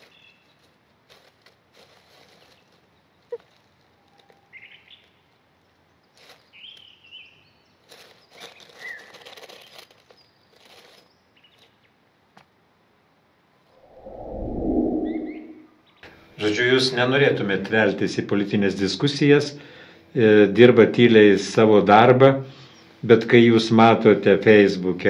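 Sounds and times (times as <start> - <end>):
rustling noise: 0.0 - 5.2, 7.8 - 11.7.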